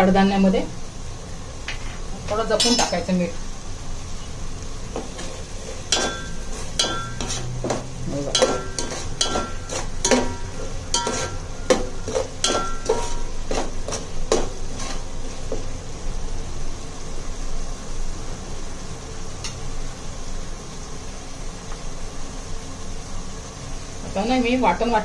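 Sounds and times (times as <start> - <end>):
masala sizzling in oil: 0.0 - 25.0
spoon clinking against pan: 2.6 - 3.0, 5.9 - 7.4, 8.3 - 13.3.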